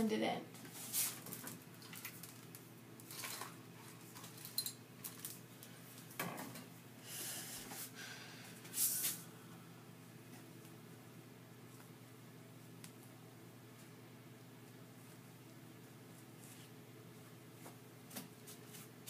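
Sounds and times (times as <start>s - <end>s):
steady low hum: 0.0s - 19.0s
rustles and light clatters: 0.6s - 6.7s.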